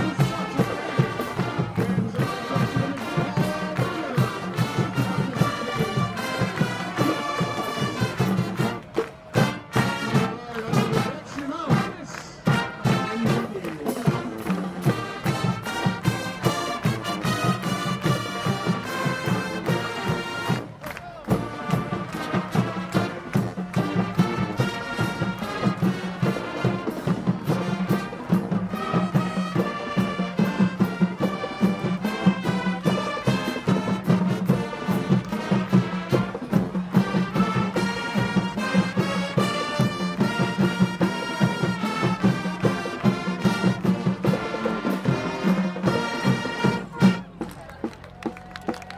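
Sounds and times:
brass section playing: 0.0 - 47.4
steady drum beat: 0.0 - 48.9.

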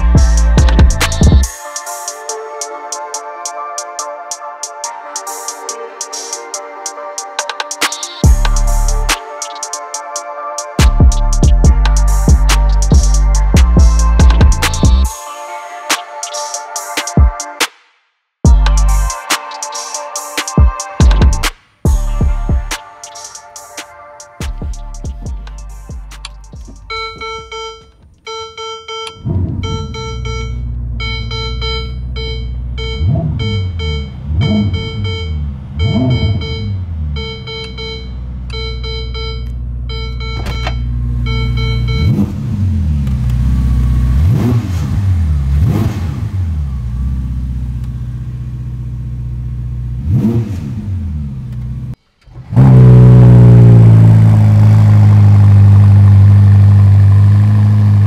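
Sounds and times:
car engine idling: 0.0 - 1.6, 24.5 - 50.2, 50.8 - 58.0
beeping chime: 26.5 - 42.2
car engine revving: 29.1 - 58.0.

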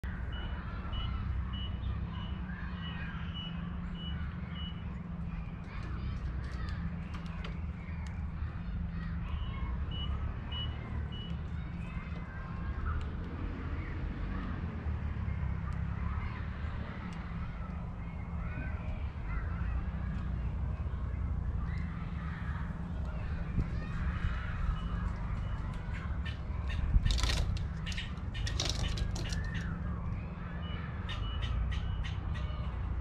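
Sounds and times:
birds chirping: 0.0 - 33.0
vehicle engine rumble: 0.0 - 33.0
reversing alarm beeps: 0.2 - 4.9, 9.9 - 11.4.

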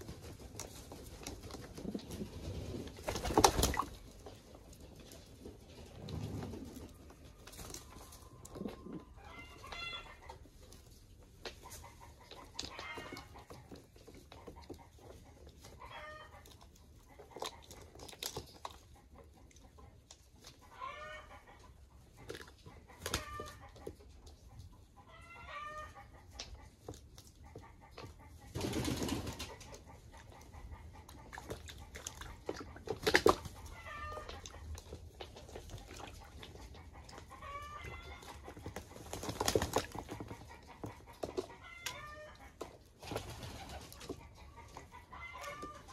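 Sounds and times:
wings flapping: 1.0 - 4.0, 28.5 - 29.6, 38.8 - 40.3, 43.0 - 44.1
pigeons splashing in water: 2.8 - 4.1, 31.3 - 33.7.

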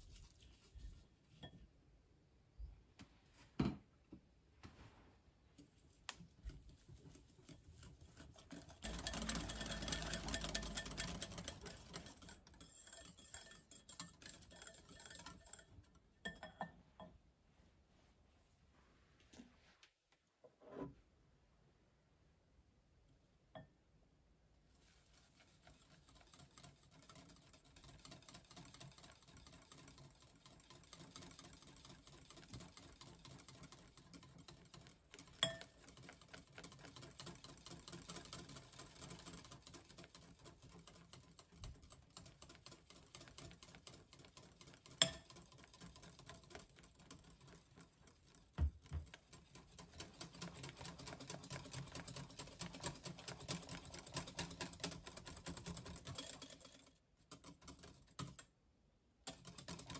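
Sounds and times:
whisk clicking against glass bowl: 6.7 - 16.7, 25.4 - 58.4.

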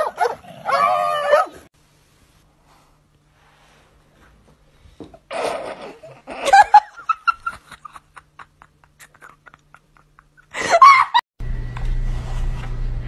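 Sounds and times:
person laughing: 5.3 - 11.2.

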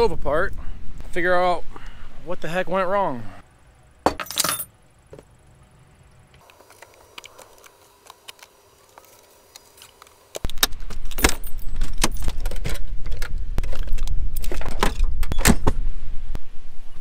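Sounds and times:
wind rumbling on microphone: 10.6 - 17.0.

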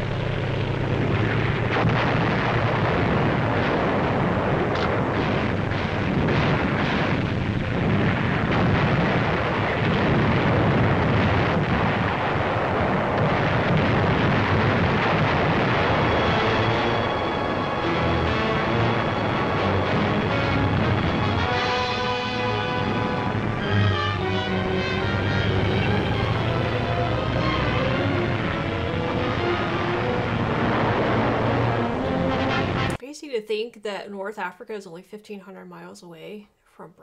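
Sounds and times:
artillery fire and explosions: 0.0 - 33.0
sharp blasts: 0.0 - 33.0
film music: 14.9 - 33.0.

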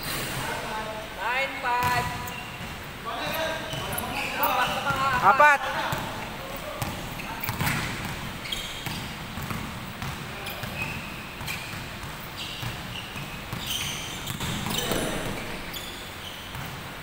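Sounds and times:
sneaker squeaks: 0.0 - 17.0
basketball bouncing on wooden floor: 6.8 - 15.9, 16.5 - 16.9.

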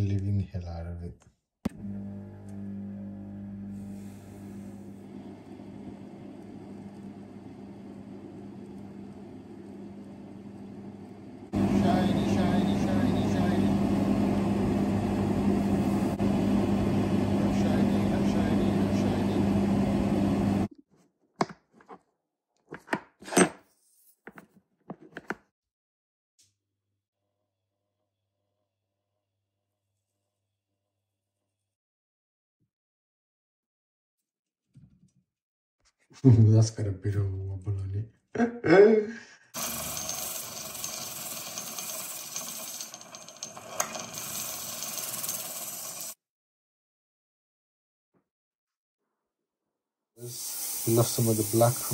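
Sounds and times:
abrasive disc grinding metal: 39.6 - 46.1.

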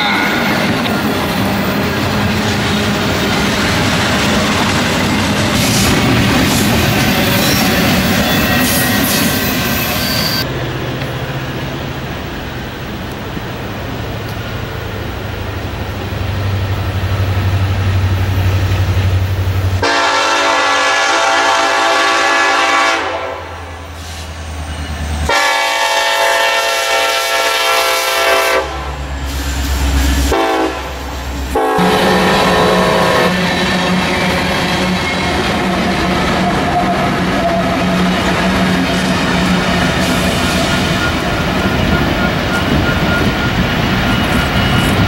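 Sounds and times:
train wheels rolling: 0.0 - 20.1, 23.8 - 45.0
diesel locomotive engine rumbling: 0.0 - 45.0
locomotive air horn blasts: 19.8 - 23.7, 25.3 - 28.9, 30.2 - 34.1.

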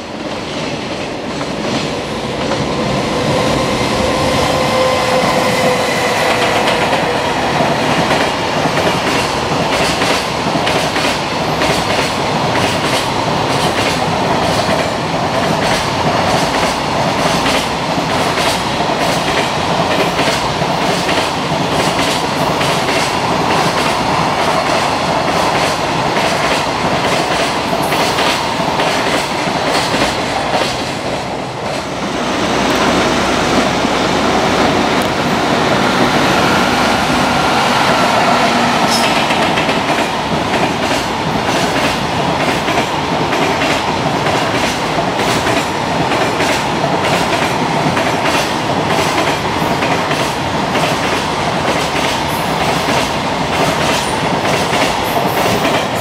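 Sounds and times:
train wheels clattering over rails: 0.0 - 56.0.

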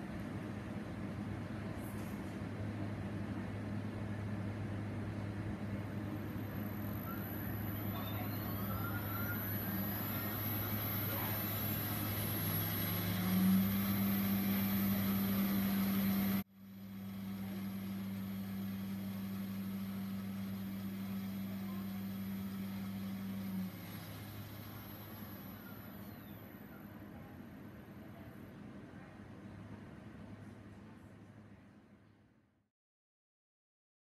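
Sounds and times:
mixer motor humming: 6.3 - 26.6.

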